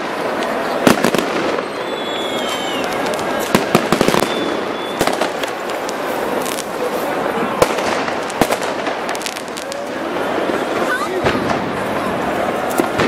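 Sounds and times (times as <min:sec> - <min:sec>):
firecrackers banging: 0:00.0 - 0:13.0
firework whistle sliding down: 0:01.4 - 0:03.1, 0:04.1 - 0:05.1.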